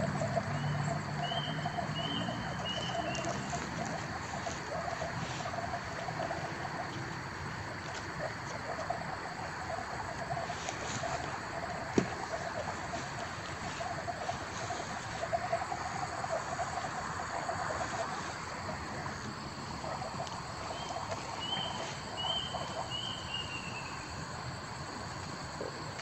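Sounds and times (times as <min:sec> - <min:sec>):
pulsing animal call: 0:00.0 - 0:07.3
frogs and insects chorus: 0:00.0 - 0:26.0.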